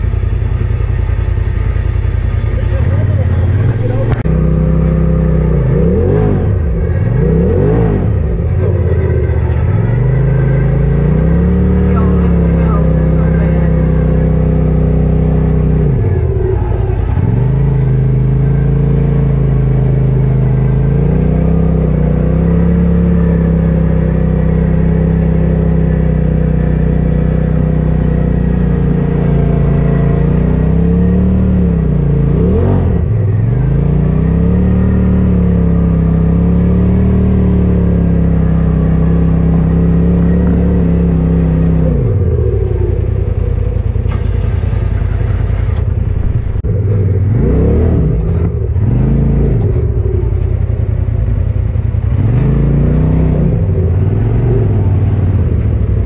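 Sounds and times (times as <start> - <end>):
engine running: 0.0 - 56.0.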